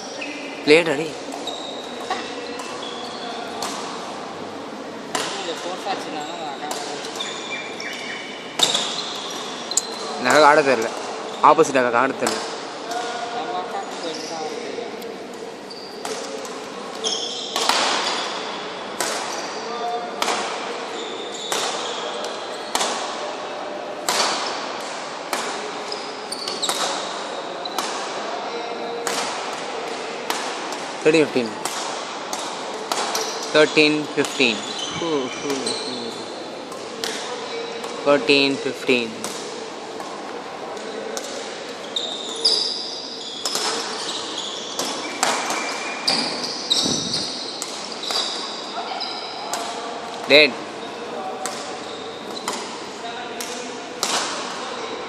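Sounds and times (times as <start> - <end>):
shoes squeaking on court floor: 0.0 - 4.2, 5.1 - 12.4, 13.0 - 18.6, 19.2 - 20.2, 20.8 - 23.4, 25.6 - 29.2, 31.0 - 52.9
rackets hitting shuttlecock: 3.6 - 4.0, 5.1 - 5.5, 17.5 - 18.2, 19.0 - 19.4, 21.5 - 23.2, 24.0 - 25.8, 26.4 - 27.1, 29.0 - 30.9, 31.6 - 33.5, 36.7 - 38.0, 39.1 - 40.4, 43.4 - 44.1, 44.8 - 48.5, 51.4 - 52.8, 53.4 - 54.6.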